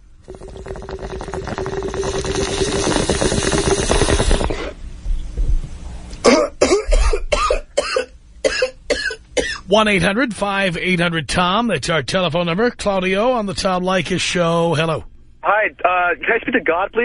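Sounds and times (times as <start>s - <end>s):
water bubbling through a bong: 0.0s - 4.8s
person coughing: 6.2s - 9.7s.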